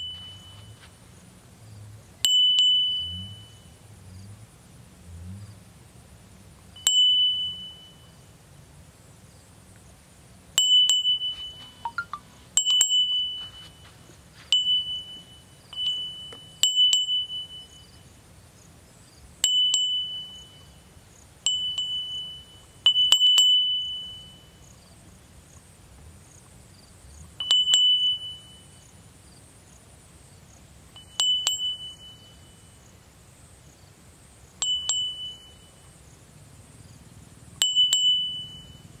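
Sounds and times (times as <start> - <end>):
high bell-like dings: 0.0 - 0.9, 2.2 - 3.8, 6.8 - 8.2, 10.6 - 18.0, 19.4 - 20.8, 21.5 - 24.6, 27.4 - 28.8, 31.0 - 32.9, 34.6 - 35.9, 37.6 - 39.0.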